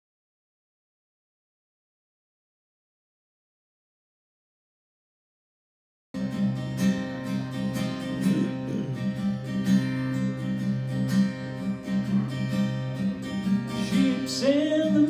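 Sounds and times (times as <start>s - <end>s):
acoustic guitar playing: 6.2s - 15.0s.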